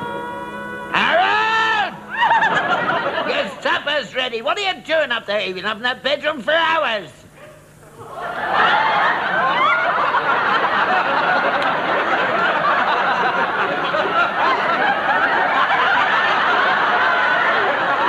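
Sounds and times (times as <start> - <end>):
audience laughing: 1.9 - 3.9, 7.9 - 18.0.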